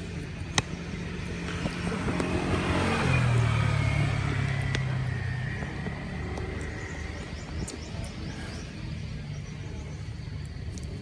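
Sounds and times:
vehicle engine passing by: 0.0s - 9.2s.

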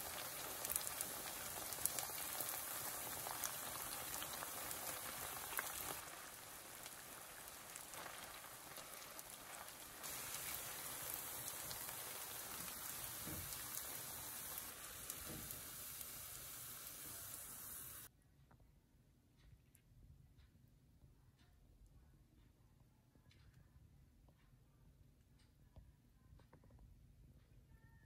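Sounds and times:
potato pancakes sizzling in oil: 0.0s - 18.1s.

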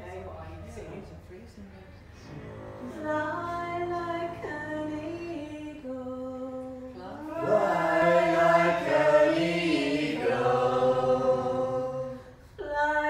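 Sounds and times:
group of voices singing a chant: 7.2s - 12.4s.

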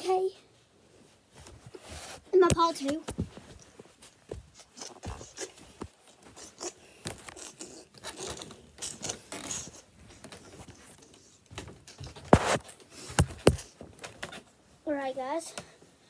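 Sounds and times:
phone handling rubbing and scraping: 8.0s - 14.4s.

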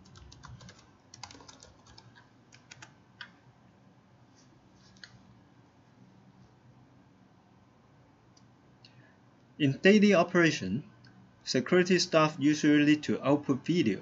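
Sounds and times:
computer keyboard key clicks: 0.0s - 3.4s.

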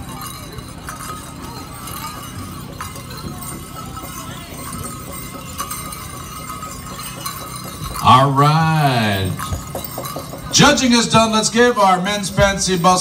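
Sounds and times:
sleigh bells jingling: 0.0s - 13.0s
drum group drumming: 4.6s - 13.0s.

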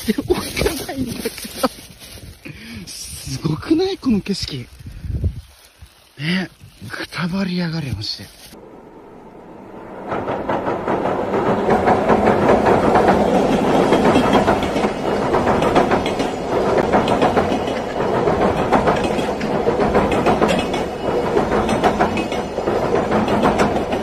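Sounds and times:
freight train crossing steel bridge: 8.5s - 24.0s.

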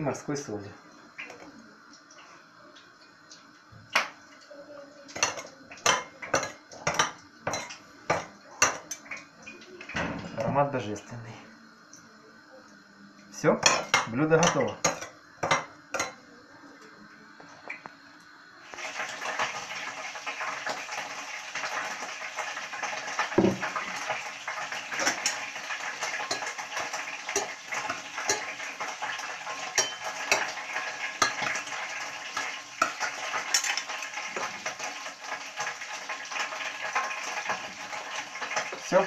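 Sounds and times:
frying pan sizzling: 0.0s - 39.0s
metal cutlery clinking on plate: 25.0s - 25.5s, 26.1s - 29.1s, 29.7s - 31.6s, 32.4s - 34.5s.

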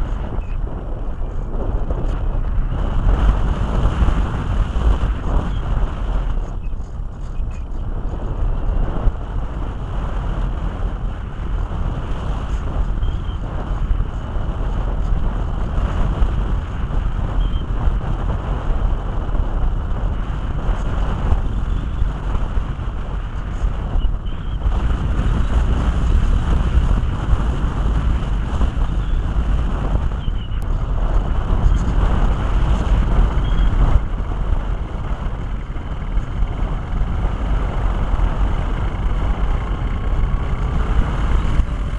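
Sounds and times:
wind noise on microphone: 0.0s - 41.9s.

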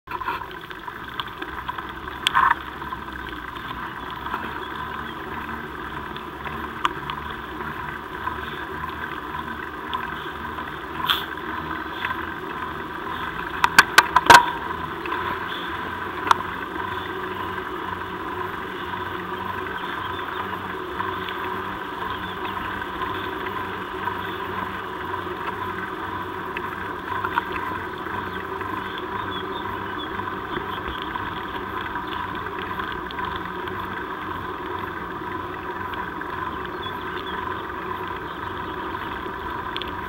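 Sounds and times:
bike rolling on asphalt: 0.1s - 40.0s
sharp clicks and rattles: 0.2s - 5.2s, 9.3s - 17.5s.

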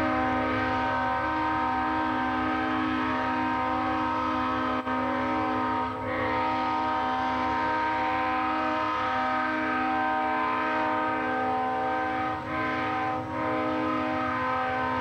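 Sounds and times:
locomotive air horn blasts: 0.0s - 15.0s.

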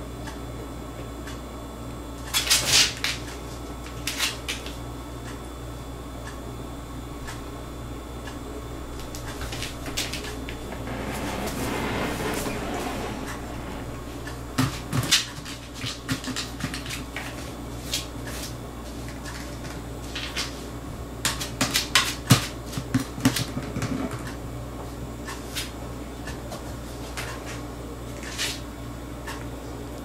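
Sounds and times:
steady low hum: 3.4s - 18.9s.

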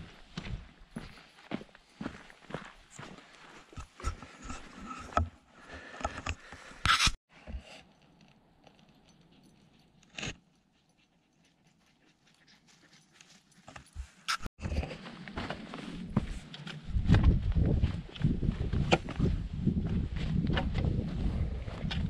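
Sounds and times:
footsteps crunching on trail: 0.0s - 4.7s.

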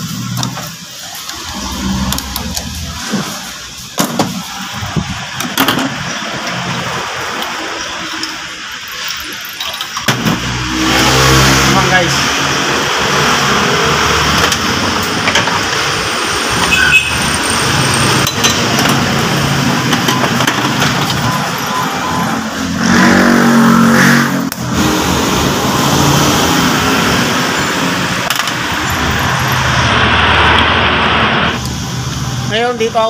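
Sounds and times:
metal parts clicking: 9.0s - 10.1s.

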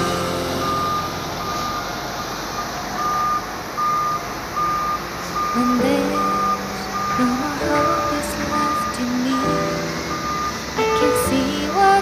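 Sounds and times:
machine rumble: 0.0s - 3.8s
reversing alarm beeping: 0.0s - 11.1s.

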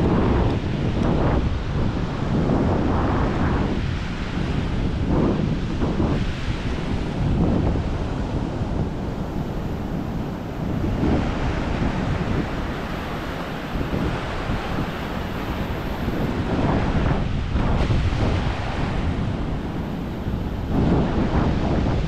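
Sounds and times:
ocean surf breaking: 0.0s - 22.0s
wind buffeting microphone: 0.0s - 22.0s.

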